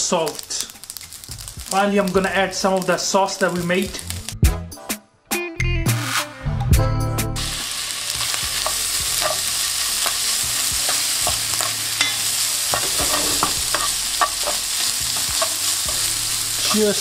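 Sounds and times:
rice sizzling in oil: 0:00.0 - 0:04.4, 0:07.4 - 0:17.0
spoon scraping pan: 0:08.2 - 0:17.0.

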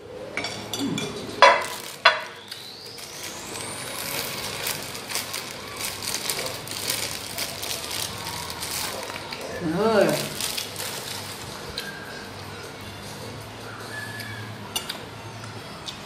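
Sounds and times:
plastic bag crinkling: 0:01.5 - 0:11.9
faint high whistle: 0:13.6 - 0:14.6.

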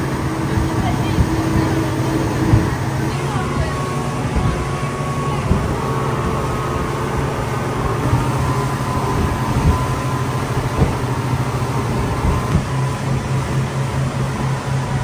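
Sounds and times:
outboard motors droning: 0:00.0 - 0:15.0
rushing water noise: 0:00.0 - 0:15.0.

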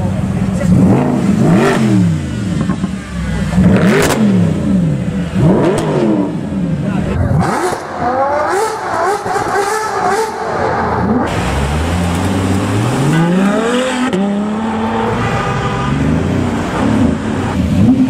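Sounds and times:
car engines revving hard: 0:00.0 - 0:18.0.

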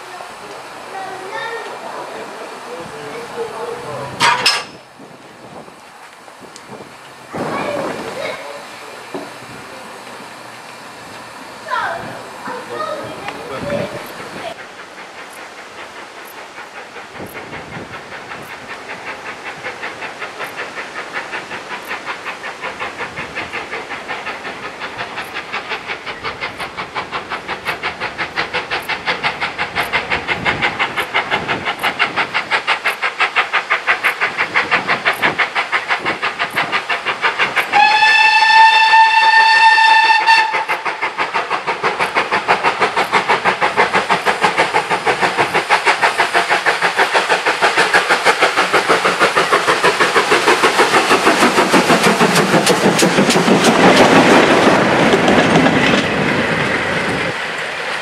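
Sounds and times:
steam locomotive exhaust beating: 0:00.0 - 0:58.0
steam locomotive whistle: 0:37.7 - 0:40.8.

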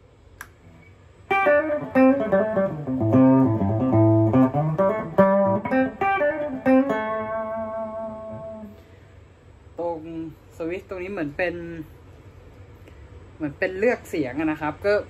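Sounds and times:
electric guitar playing: 0:00.6 - 0:08.9.

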